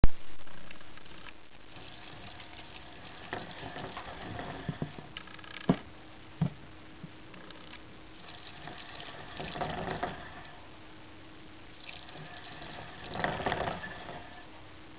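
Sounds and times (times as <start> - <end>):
hamster wheel rattling: 1.7 - 5.5, 8.2 - 10.6, 11.7 - 14.5.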